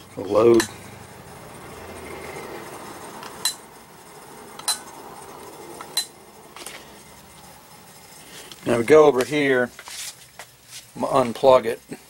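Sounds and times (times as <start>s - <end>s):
low steady background hum: 0.0s - 12.0s
sharp metallic clicks with ringing: 0.2s - 1.0s, 3.1s - 3.7s, 4.5s - 6.2s.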